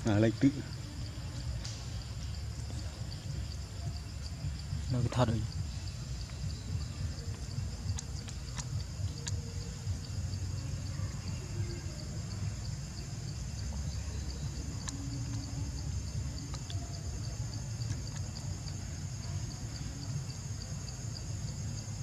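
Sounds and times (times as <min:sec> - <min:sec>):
insects trilling: 0:00.0 - 0:22.0
faint sharp ticks: 0:07.2 - 0:10.0, 0:14.5 - 0:15.5, 0:16.4 - 0:16.9.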